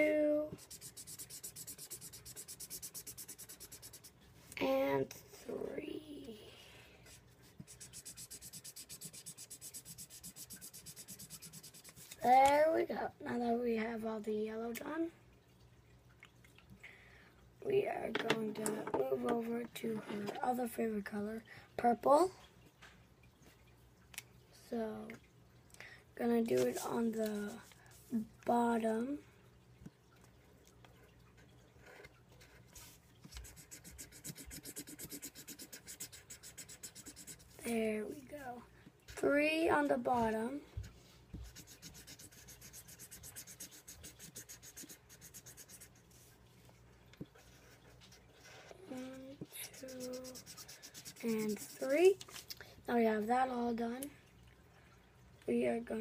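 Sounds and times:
marker scribbling on paper: 0.5s - 4.1s, 7.5s - 12.2s, 32.8s - 37.7s, 41.4s - 46.3s, 48.5s - 52.0s.

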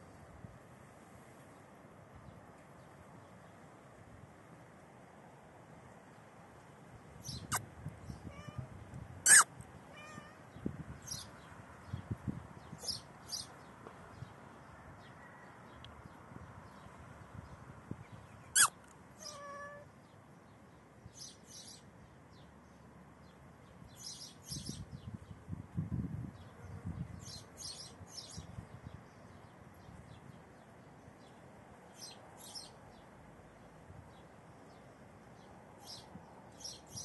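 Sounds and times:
cat meowing: 8.3s - 8.7s, 9.3s - 10.4s, 18.6s - 19.9s.

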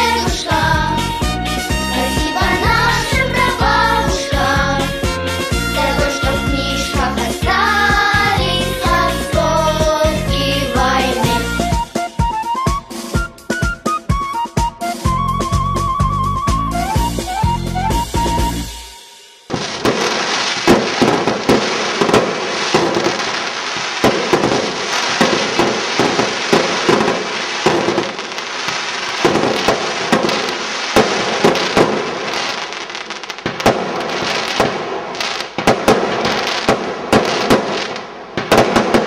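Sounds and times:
fireworks crackle: 0.0s - 0.9s, 1.6s - 11.4s, 18.2s - 39.0s
fireworks shells bursting: 18.1s - 39.0s.

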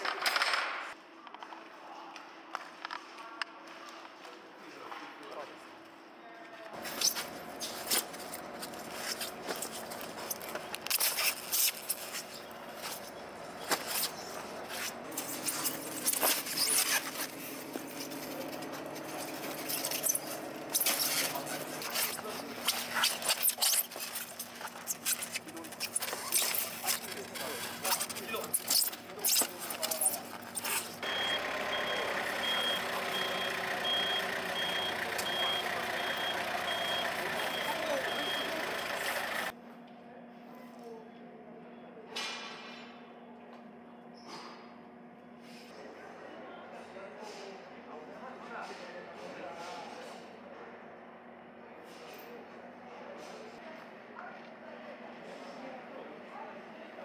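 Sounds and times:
forklift engine running: 6.8s - 10.9s, 12.0s - 22.9s, 30.3s - 39.5s
crabs and boxes clicking and scraping: 6.8s - 31.0s
steady machine hum: 6.8s - 39.7s
forklift back-up alarm beeping: 31.0s - 39.5s.

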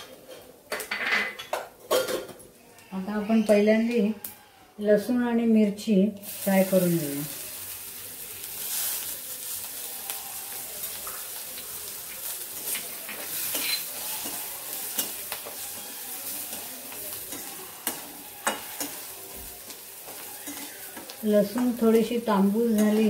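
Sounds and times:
garlic sizzling in oil: 6.2s - 23.0s
spatula scraping a metal pan: 13.1s - 19.3s.

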